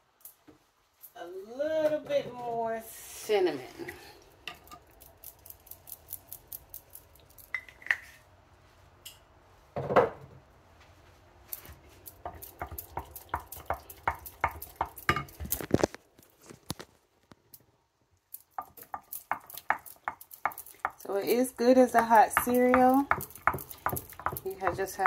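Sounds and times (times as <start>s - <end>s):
wooden spoon tapping a bowl: 21.9s - 25.0s.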